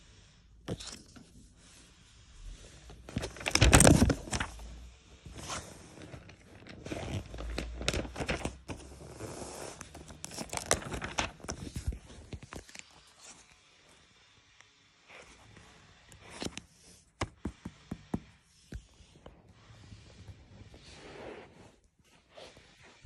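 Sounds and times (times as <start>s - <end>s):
album pages rustling: 2.9s - 13.6s.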